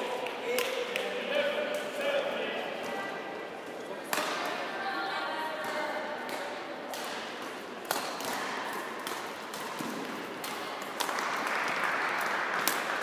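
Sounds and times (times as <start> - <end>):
hall background noise: 0.0 - 13.0
racket hitting shuttlecock: 4.1 - 4.6, 5.6 - 11.5, 12.2 - 13.0.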